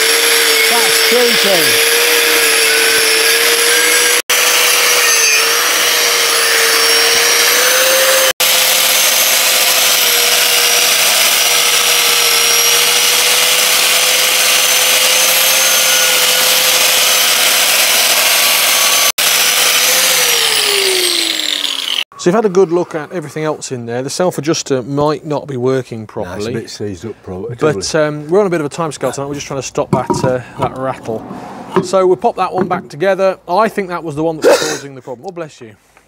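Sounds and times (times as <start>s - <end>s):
angle grinder grinding metal: 0.0s - 22.1s, 29.9s - 30.8s, 31.7s - 33.1s.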